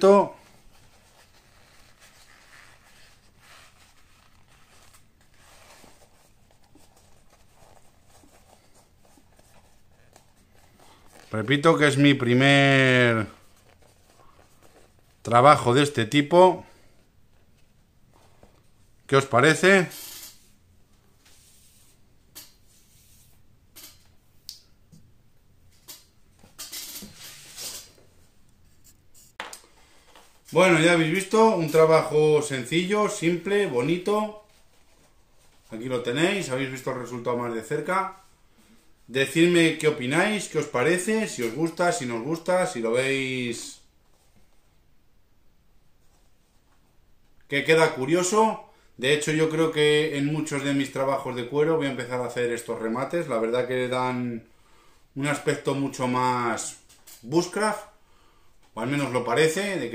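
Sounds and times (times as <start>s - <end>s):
leather pouch rustling: 0.4s - 11.4s.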